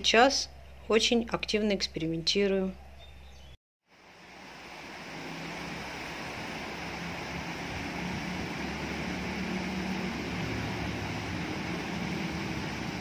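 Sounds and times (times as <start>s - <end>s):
stream running over rocks: 3.9s - 13.0s.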